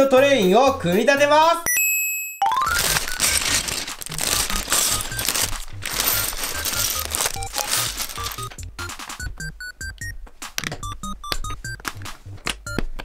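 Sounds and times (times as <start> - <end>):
plastic bag crinkling: 2.5 - 8.6
background music with bass beat: 10.8 - 13.0.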